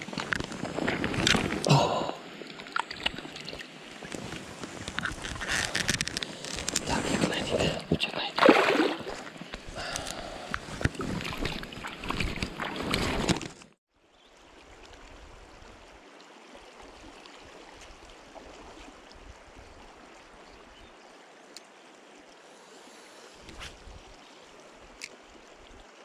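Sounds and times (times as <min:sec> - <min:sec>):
flowing river rushing: 0:06.5 - 0:13.2
hands splashing in water: 0:08.3 - 0:13.4.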